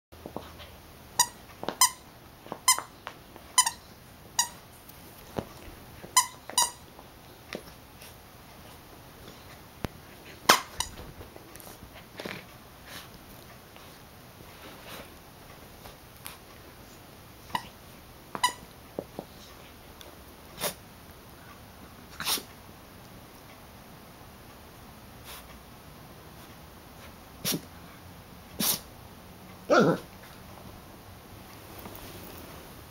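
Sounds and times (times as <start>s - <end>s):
dog toy squeaker squeaking: 3.6s - 3.8s, 6.2s - 6.8s, 18.4s - 18.6s.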